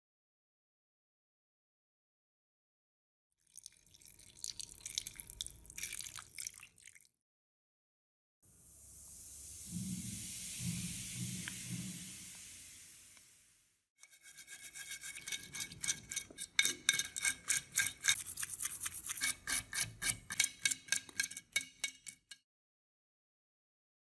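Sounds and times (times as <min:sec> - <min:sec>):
fizzing liquid bath: 0:03.4 - 0:07.1, 0:08.8 - 0:13.7
brush scrubbing metal in liquid: 0:14.0 - 0:22.4.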